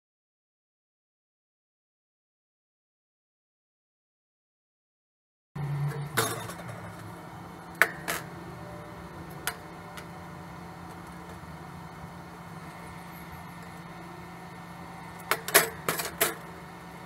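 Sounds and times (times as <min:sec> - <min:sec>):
steady low hum: 0:05.6 - 0:17.0.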